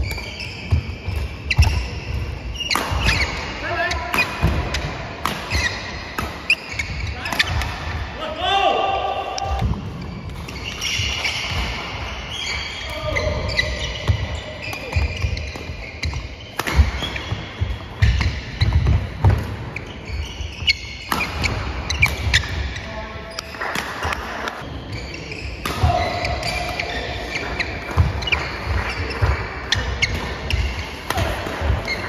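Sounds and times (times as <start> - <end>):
court shoes squeaking: 0.0 - 8.2, 9.0 - 32.0
racket striking shuttlecock: 2.6 - 3.4, 4.0 - 7.9, 14.6 - 17.3, 21.0 - 22.6.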